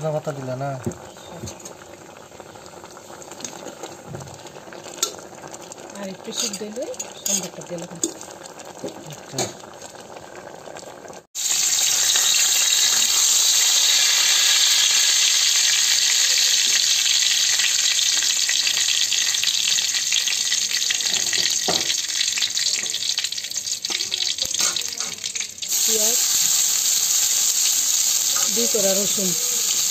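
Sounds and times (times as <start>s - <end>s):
oil sizzling loudly: 0.0s - 29.9s
metal ladle scraping a pot: 6.3s - 8.3s.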